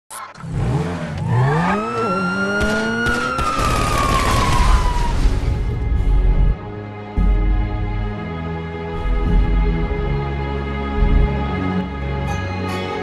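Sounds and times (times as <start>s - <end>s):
deep rumble: 4.1s - 12.1s.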